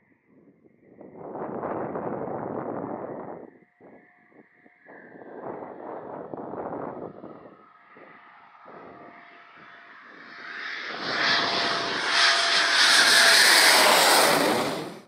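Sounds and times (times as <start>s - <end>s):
jet noise: 8.2s - 15.0s.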